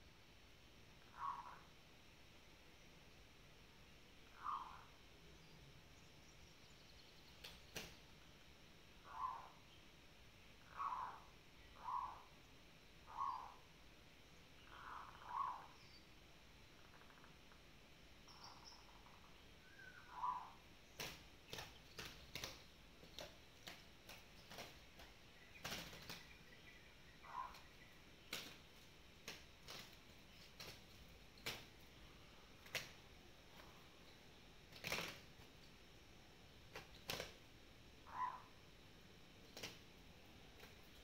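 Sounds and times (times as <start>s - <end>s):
wing slaps and flutters: 7.3s - 8.0s, 21.0s - 26.4s, 28.3s - 31.8s, 32.6s - 33.7s, 34.7s - 35.5s, 36.7s - 37.4s, 39.5s - 39.9s
bird call: 18.3s - 20.6s, 25.4s - 28.5s, 38.1s - 38.6s.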